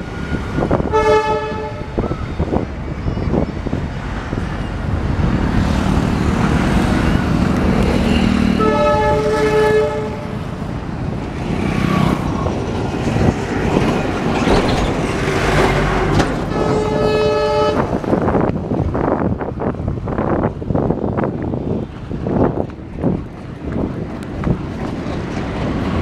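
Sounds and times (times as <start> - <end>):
goods train rumbling: 0.0 - 26.0
road traffic: 0.0 - 26.0
wind on microphone: 0.0 - 26.0
train horn blasts: 0.8 - 2.1, 8.0 - 10.4, 16.0 - 18.1.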